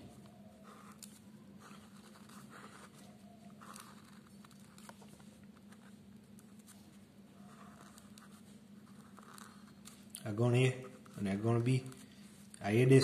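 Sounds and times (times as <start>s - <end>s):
low steady hum: 0.0s - 13.0s
marker pen scratching on paper: 0.2s - 11.6s.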